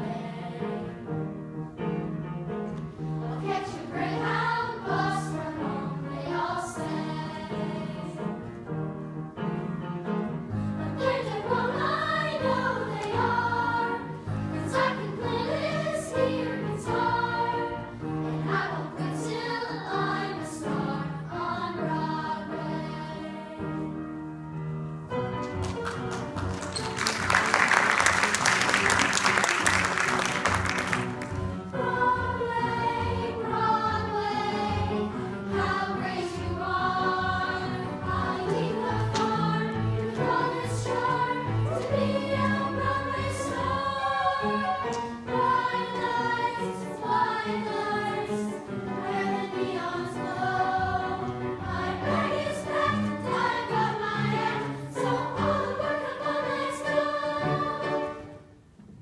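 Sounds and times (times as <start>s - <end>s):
children singing in unison: 3.2s - 8.3s, 10.8s - 23.7s, 31.7s - 58.2s.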